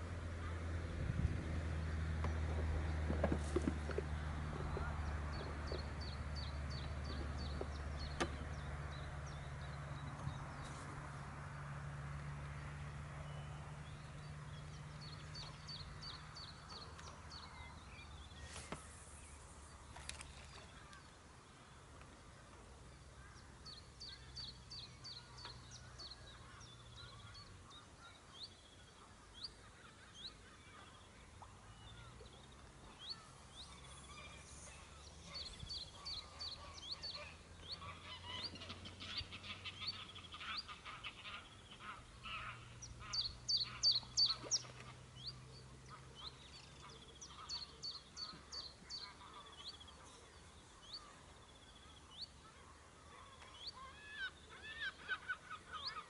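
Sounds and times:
birds chirping: 0:01.8 - 0:11.8, 0:12.8 - 0:56.0
waterfowl honking: 0:36.0 - 0:45.0.

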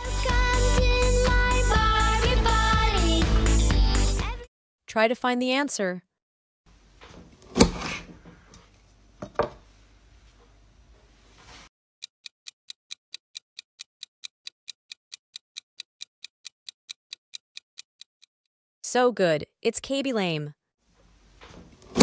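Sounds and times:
timer ticking fast: 0:12.1 - 0:18.3.

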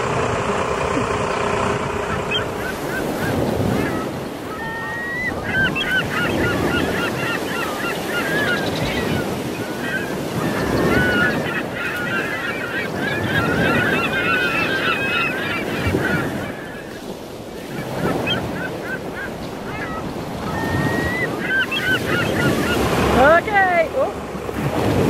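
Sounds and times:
bird sweeping calls: 0:00.0 - 0:23.8
birds chattering calls: 0:00.0 - 0:24.4
wind rumble on microphone: 0:00.0 - 0:25.0.

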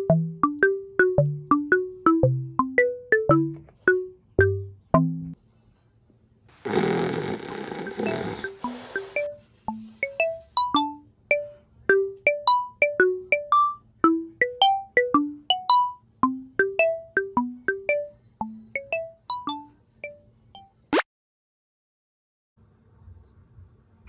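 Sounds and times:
music-box melody: 0:00.0 - 0:05.3, 0:07.9 - 0:20.8.

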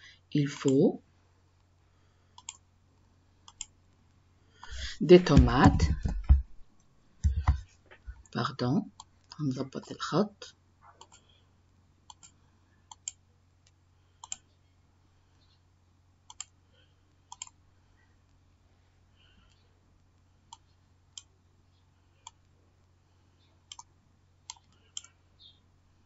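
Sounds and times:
faint low hum: 0:00.0 - 0:26.0
computer mouse clicking: 0:02.4 - 0:02.6, 0:03.4 - 0:03.7, 0:11.0 - 0:11.2, 0:12.1 - 0:14.5, 0:16.3 - 0:16.6, 0:17.3 - 0:17.6, 0:23.7 - 0:23.9, 0:24.5 - 0:25.1.

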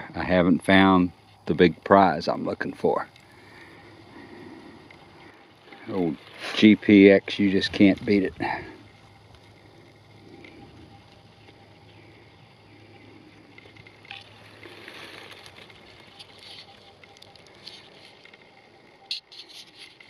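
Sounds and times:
faint steady hum: 0:00.0 - 0:20.0
coil swishing through dry leaves: 0:14.3 - 0:18.2.

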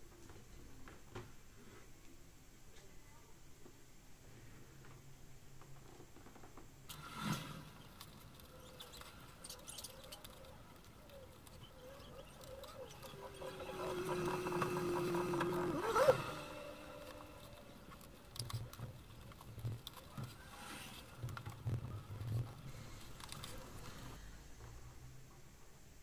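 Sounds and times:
thread squeaking through leather: 0:06.9 - 0:24.1.

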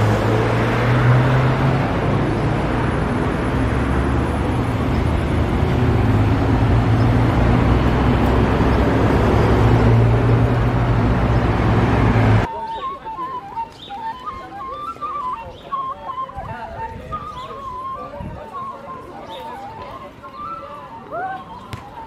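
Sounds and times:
city bus passing: 0:00.0 - 0:13.6
street traffic road noise: 0:00.0 - 0:22.0.

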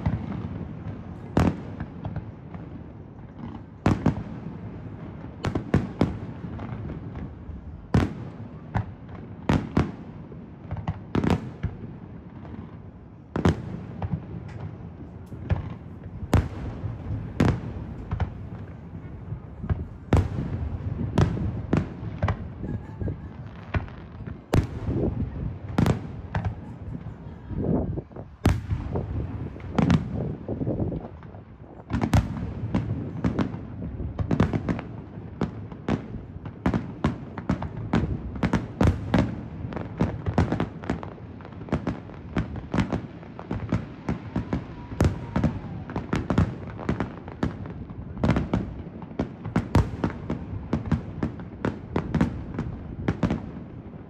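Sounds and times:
fireworks bursting: 0:00.0 - 0:54.0.

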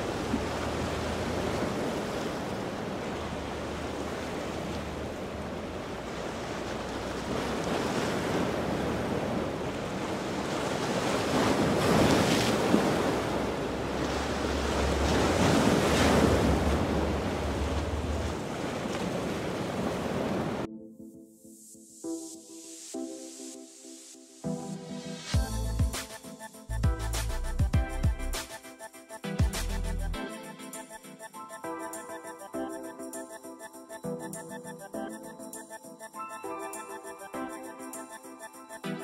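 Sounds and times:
ocean waves breaking: 0:00.0 - 0:20.7.

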